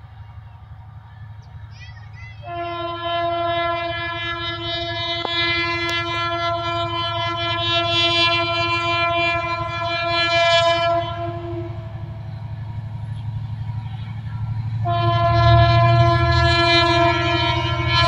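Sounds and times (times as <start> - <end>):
diesel engine low rumble: 0.0 - 18.0
locomotive air horn blast: 2.4 - 12.2, 14.6 - 18.0.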